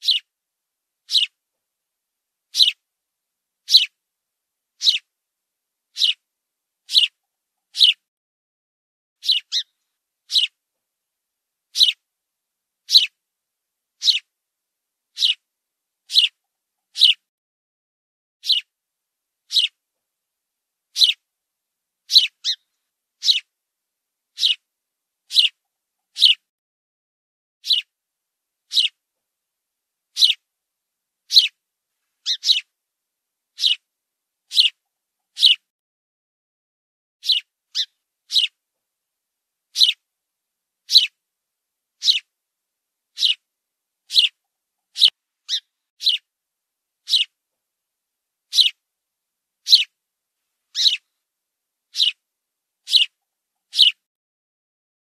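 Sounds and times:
sparrow chirping: 0.0s - 0.3s, 1.0s - 1.4s, 2.5s - 2.8s, 3.6s - 4.0s, 4.8s - 5.1s, 5.9s - 6.2s, 6.9s - 8.0s, 9.2s - 10.6s, 11.7s - 12.0s, 12.8s - 13.2s, 14.0s - 14.3s, 15.1s - 15.4s, 16.1s - 17.2s, 18.4s - 18.7s, 19.5s - 19.8s, 20.9s - 21.2s, 22.0s - 23.5s, 24.3s - 24.7s, 25.3s - 26.4s, 27.6s - 27.9s, 28.6s - 29.0s, 30.1s - 30.4s, 31.3s - 31.6s, 32.2s - 32.7s, 33.5s - 33.9s, 34.5s - 35.6s, 37.2s - 38.6s, 39.7s - 40.0s, 40.8s - 41.2s, 42.0s - 42.3s, 43.1s - 43.5s, 44.1s - 46.3s, 47.0s - 47.4s, 48.5s - 48.8s, 49.6s - 50.0s, 50.7s - 51.1s, 51.9s - 52.2s, 52.8s - 54.1s.

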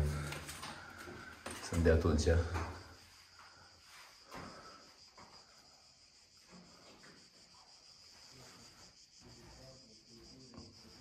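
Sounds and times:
high-pitched insect chirring: 2.8s - 11.0s.

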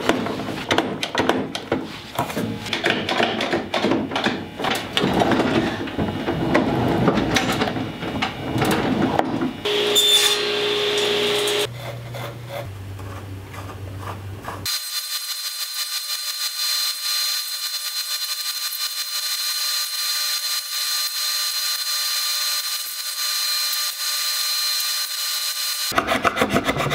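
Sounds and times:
wooden pieces knocking and scraping: 0.0s - 9.6s
table saw whining: 9.6s - 11.7s, 14.7s - 26.0s.

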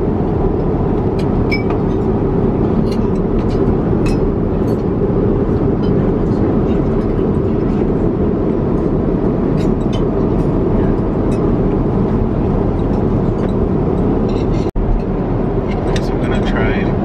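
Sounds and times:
airliner cabin rumble: 0.0s - 17.0s.

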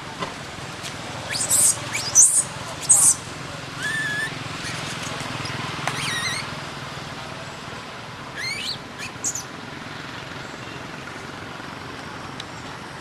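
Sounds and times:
steady background noise: 0.0s - 13.0s
infant monkey high-pitched cries: 1.3s - 5.2s, 5.9s - 6.6s, 8.4s - 9.5s.

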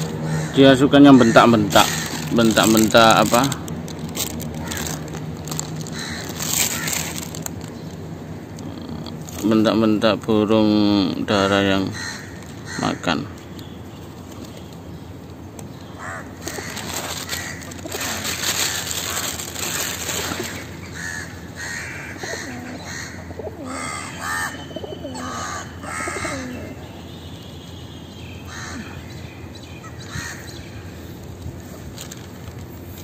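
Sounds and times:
crows cawing: 0.0s - 3.4s, 4.3s - 7.5s, 11.4s - 13.4s, 16.0s - 26.8s, 28.5s - 29.2s, 29.8s - 30.6s
plastic bag rustling: 1.7s - 8.0s, 16.4s - 20.8s, 31.6s - 33.0s.

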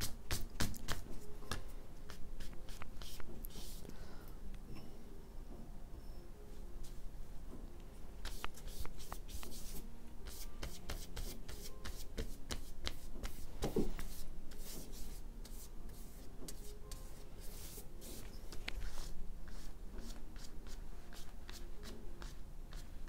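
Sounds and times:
brush scrubbing on paper: 14.0s - 18.2s.

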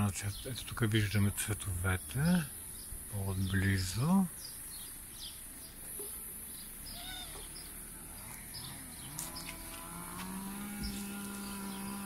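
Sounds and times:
faint bird chirps: 1.9s - 9.7s
farm animal calling: 6.6s - 12.0s.

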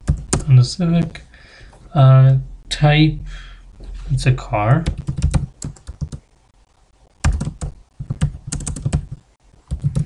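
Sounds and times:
typing on computer keyboard: 4.8s - 6.2s, 7.2s - 10.0s.

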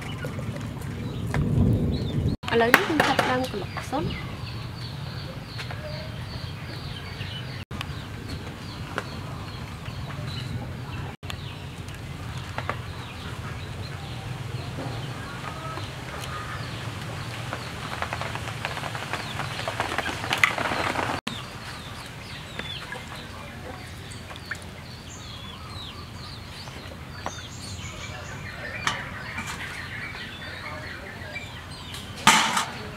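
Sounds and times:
small birds chirping: 0.0s - 32.9s
chickens clucking: 25.4s - 32.9s.

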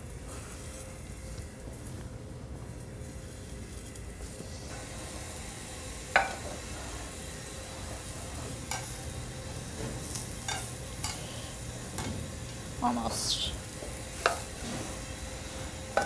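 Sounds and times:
meat sizzling in a pan: 3.0s - 16.0s
metallic clink of cookware: 10.5s - 11.2s.

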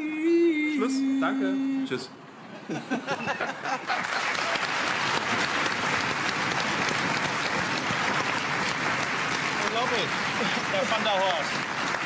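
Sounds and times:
audience applause: 3.4s - 12.0s.

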